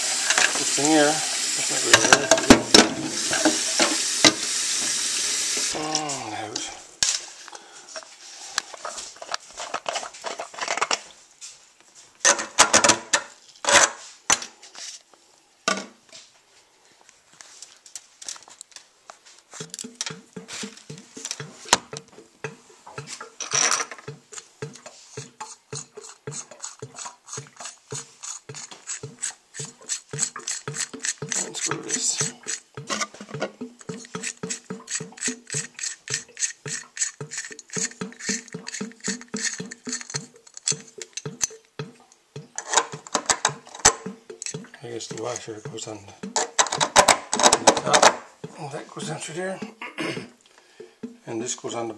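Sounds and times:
plastic nut ratcheting clicks: 29.6s - 32.7s, 33.4s - 41.6s.

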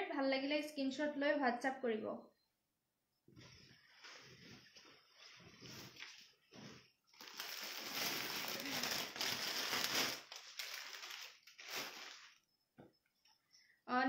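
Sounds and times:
cloth rustling: 3.3s - 12.5s.

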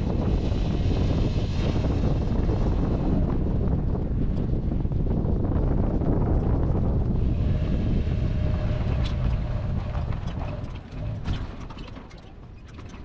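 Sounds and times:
tyre and road rumble: 0.0s - 13.0s
wind on microphone: 0.0s - 13.0s
sharp clicks and rattles: 8.8s - 13.0s.

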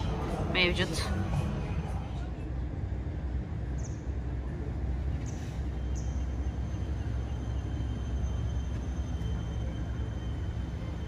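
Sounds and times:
low rumble of city ambience: 0.0s - 11.0s.

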